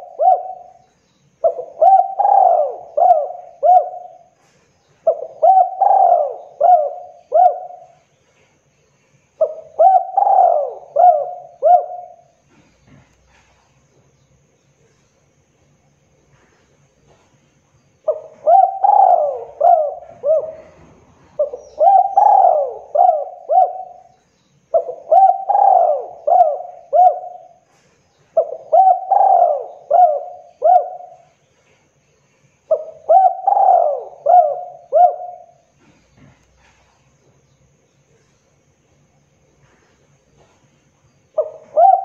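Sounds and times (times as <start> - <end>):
dove cooing: 0.0 - 8.1, 9.4 - 13.6, 18.0 - 31.4, 32.7 - 36.9, 41.3 - 42.0.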